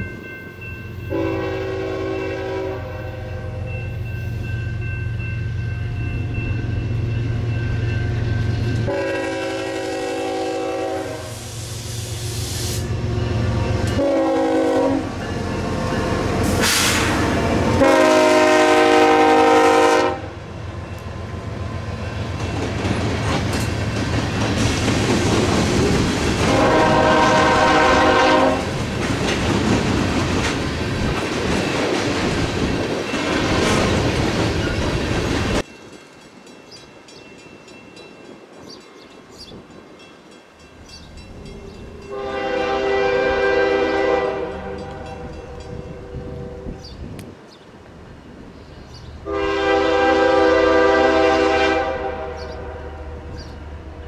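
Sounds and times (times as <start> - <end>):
train chime horn blasts: 0.0 - 11.5, 12.7 - 21.0, 26.4 - 28.8, 40.9 - 47.0, 49.2 - 53.4
train rumble and wheel clatter: 0.0 - 54.0.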